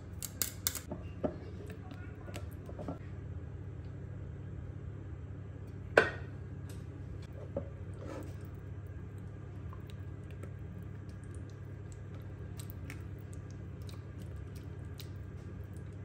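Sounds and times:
low hum: 0.0s - 16.0s
spatula squishing wet marinade: 8.0s - 16.0s.

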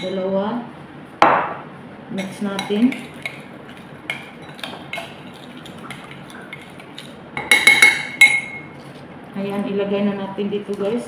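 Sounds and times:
spoon clinking on bowl: 7.4s - 8.7s.

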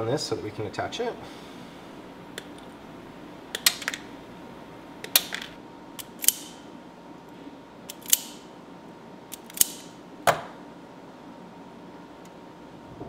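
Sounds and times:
wire stripper snapping shut: 5.0s - 6.6s, 9.3s - 10.5s.

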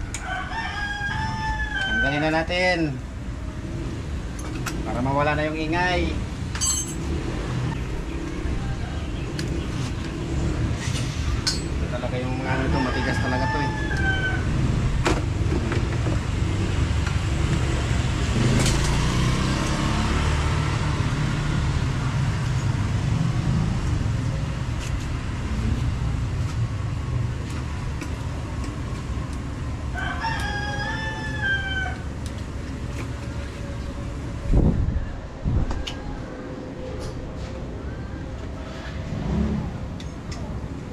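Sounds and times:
rooster crowing: 0.2s - 2.3s, 12.3s - 14.8s, 29.9s - 32.1s.

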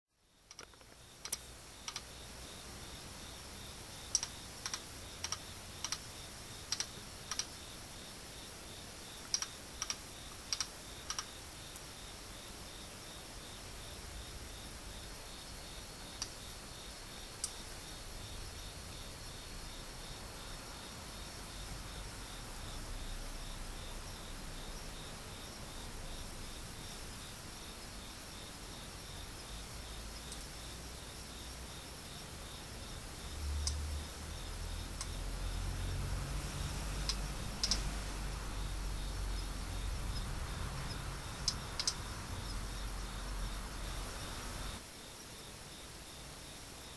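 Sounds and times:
katydid chirps: 36.9s - 44.8s.

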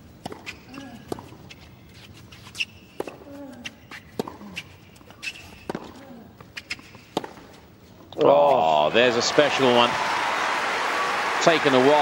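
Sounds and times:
shoes squeaking on court: 0.1s - 8.6s
tennis ball bouncing: 0.2s - 1.6s, 2.9s - 7.6s
racket hitting tennis ball: 4.0s - 4.7s, 5.3s - 6.0s, 6.7s - 7.6s.

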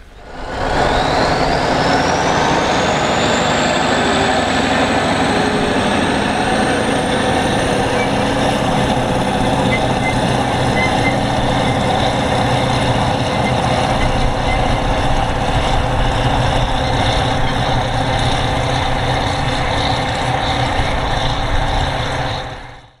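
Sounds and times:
tractor diesel engine drone: 0.0s - 23.0s.

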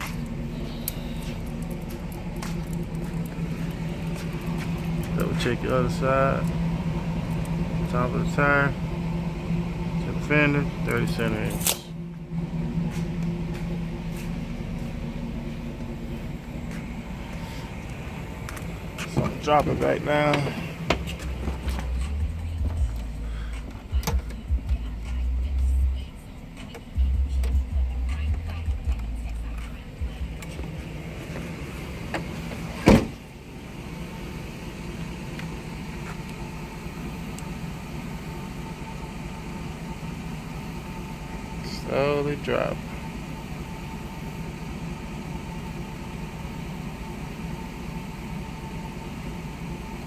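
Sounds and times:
footsteps on concrete: 0.0s - 0.3s, 1.0s - 5.2s, 12.8s - 15.1s, 15.7s - 23.0s, 30.1s - 33.2s, 35.3s - 36.4s
low mechanical hum: 0.0s - 50.0s
vehicle door shutting: 17.2s - 22.9s, 23.6s - 24.6s, 30.2s - 33.4s.

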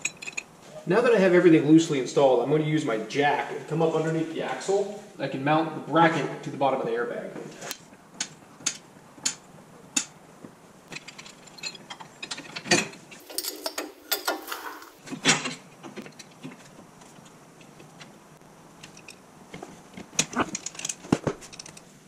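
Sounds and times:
metal rattling: 10.9s - 15.0s.

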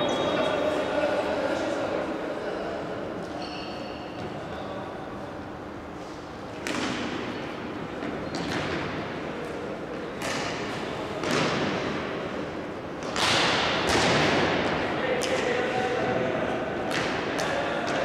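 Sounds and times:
sharp bangs echoing in a hall: 10.0s - 18.0s.

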